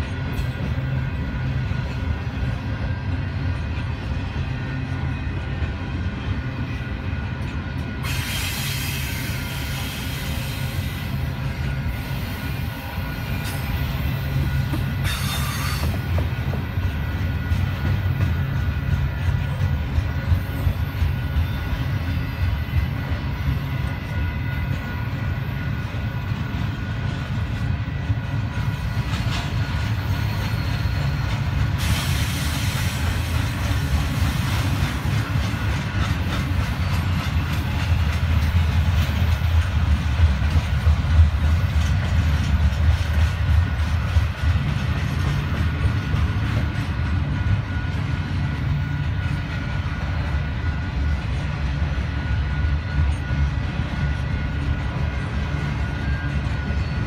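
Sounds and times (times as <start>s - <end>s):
clickety-clack of rails: 0.0s - 57.0s
freight train wheels rumbling on track: 0.0s - 57.0s
hiss: 8.0s - 11.2s, 15.0s - 15.9s, 31.7s - 34.9s.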